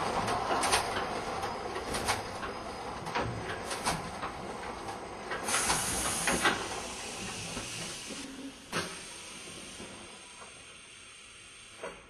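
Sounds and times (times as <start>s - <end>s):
sharp hiss: 5.4s - 8.2s.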